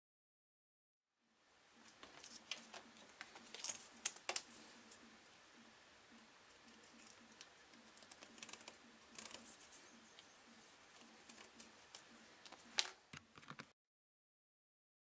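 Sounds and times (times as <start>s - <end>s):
marker pen scratching on metal: 6.7s - 9.9s.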